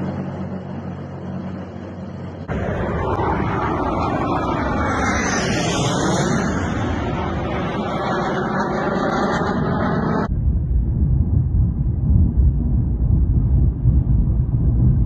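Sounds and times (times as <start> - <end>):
tank engine droning: 0.0 - 10.3
low-flying jets passing overhead: 0.0 - 15.0.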